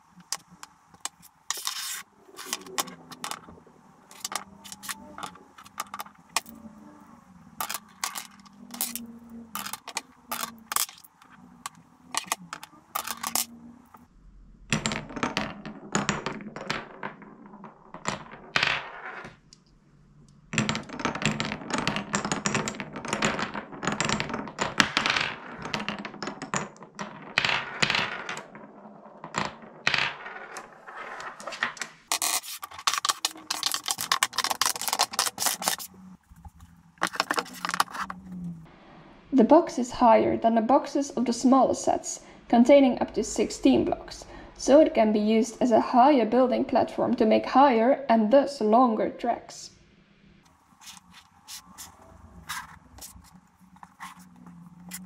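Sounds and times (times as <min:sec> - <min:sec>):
marbles rolling through wooden channels: 0:00.0 - 0:14.1, 0:14.7 - 0:38.7, 0:50.5 - 0:55.0
wooden blocks clacking: 0:00.0 - 0:14.1, 0:14.7 - 0:19.7, 0:20.6 - 0:38.6, 0:50.5 - 0:55.0.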